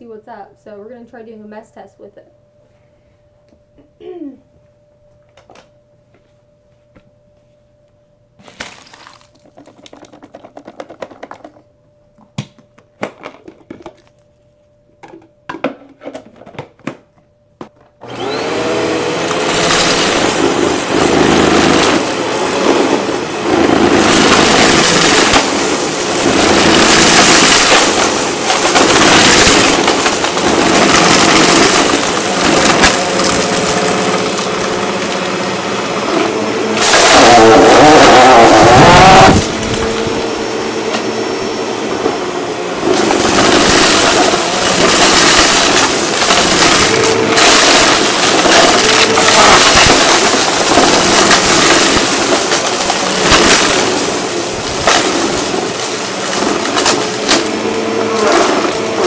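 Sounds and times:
debris rattling onto carpet: 0:08.4 - 0:11.7, 0:23.8 - 0:35.8, 0:43.0 - 0:59.0
upright vacuum running: 0:17.6 - 0:59.0
debris crackling in vacuum: 0:18.0 - 0:41.1, 0:42.7 - 0:59.0.

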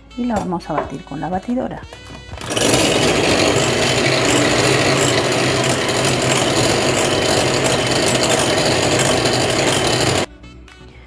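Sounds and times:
electric hand mixer whisking: 0:02.0 - 0:10.3.

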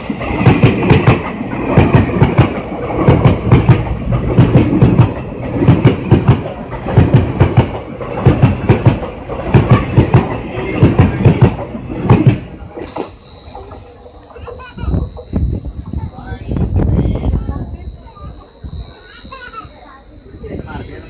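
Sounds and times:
train wheels clattering over joints: 0:00.0 - 0:16.6
train rumble: 0:00.0 - 0:21.0.

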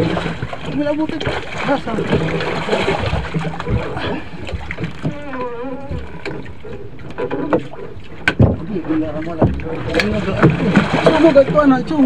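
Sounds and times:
water sloshing against boat: 0:00.0 - 0:12.0
knocks from boat hull: 0:07.1 - 0:11.3.

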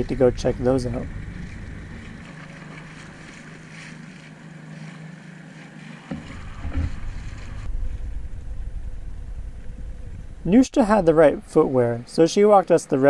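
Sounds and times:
outboard motor humming: 0:00.0 - 0:13.0
water noise: 0:00.0 - 0:13.0.

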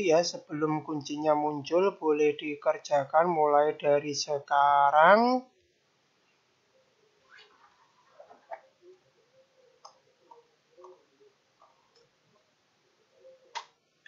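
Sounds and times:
faint irregular clicks: 0:09.8 - 0:11.0.

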